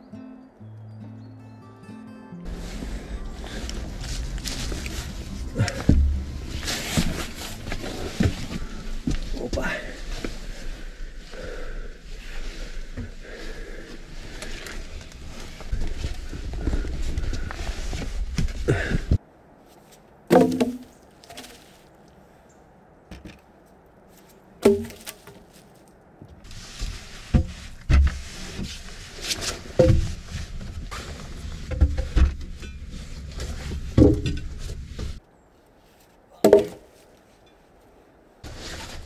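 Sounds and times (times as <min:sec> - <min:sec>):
rustling: 0:02.5 - 0:22.4, 0:23.2 - 0:39.0
wooden knocks of logs shifting: 0:03.8 - 0:10.3, 0:20.3 - 0:21.8, 0:23.1 - 0:23.5, 0:24.6 - 0:35.2, 0:36.4 - 0:37.1
logs landing with wooden thuds: 0:04.1 - 0:10.3, 0:20.3 - 0:21.9, 0:23.1 - 0:23.5, 0:24.1 - 0:31.0, 0:31.6 - 0:32.8, 0:33.4 - 0:35.2, 0:36.3 - 0:37.1.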